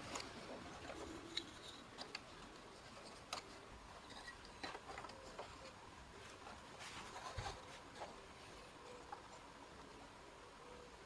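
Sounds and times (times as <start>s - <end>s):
wooden staves clicking and tapping: 0.0s - 8.2s.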